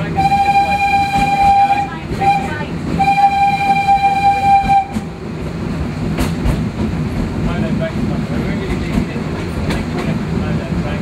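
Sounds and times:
train rumbling: 0:00.0 - 0:11.0
steam locomotive whistle: 0:00.1 - 0:05.1.

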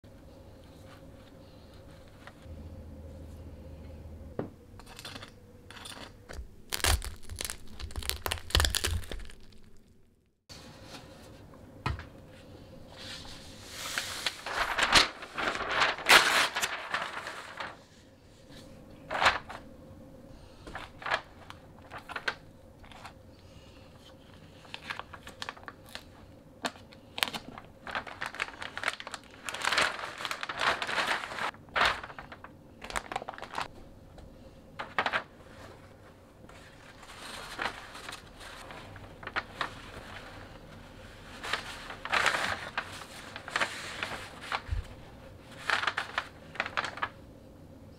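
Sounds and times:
paper and plastic wrap crinkling: 0:06.6 - 0:10.0, 0:13.0 - 0:19.7, 0:20.6 - 0:23.2, 0:23.9 - 0:33.7, 0:34.7 - 0:47.2.

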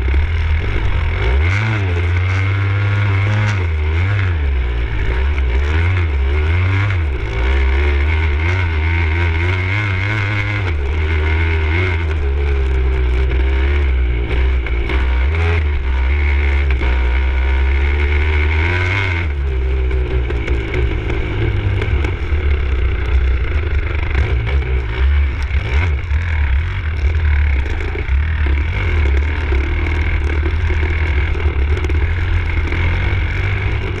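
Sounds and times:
motorcycle engine revving: 0:00.0 - 0:34.0
motorcycle knocking over bumps: 0:18.8 - 0:34.0.

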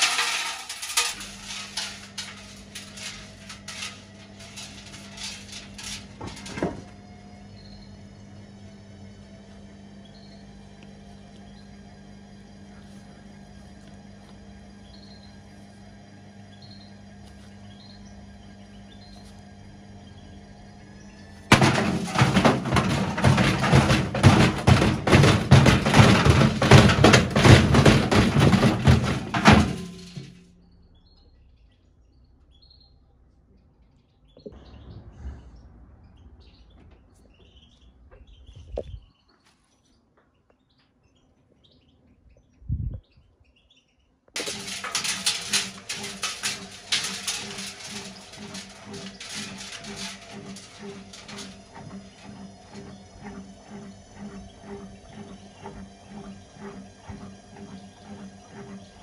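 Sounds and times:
washing machine clattering and banging: 0:00.0 - 0:07.8, 0:21.2 - 0:30.4, 0:44.4 - 0:59.0.

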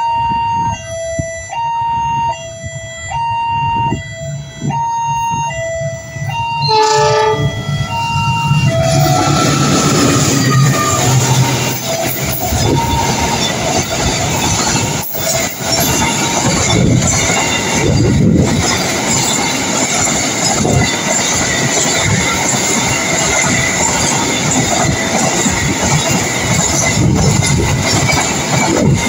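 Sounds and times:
train wheels on rails: 0:04.3 - 0:29.0
high wheel squeal: 0:06.6 - 0:29.0.

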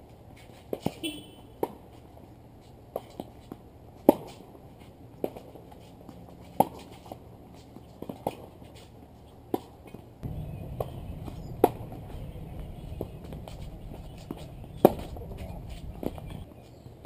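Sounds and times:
tennis balls struck by rackets: 0:00.5 - 0:02.0, 0:02.9 - 0:04.6, 0:05.2 - 0:05.9, 0:06.5 - 0:08.8, 0:09.5 - 0:16.5
low rushing noise: 0:10.2 - 0:16.5.

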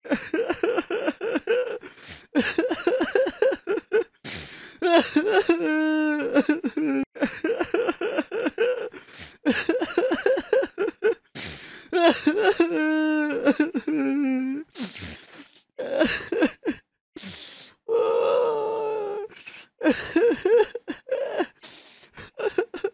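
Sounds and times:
person sobbing and wailing: 0:00.0 - 0:04.1, 0:04.8 - 0:11.2, 0:12.0 - 0:14.7, 0:15.8 - 0:16.8, 0:17.9 - 0:21.6, 0:22.2 - 0:22.9.

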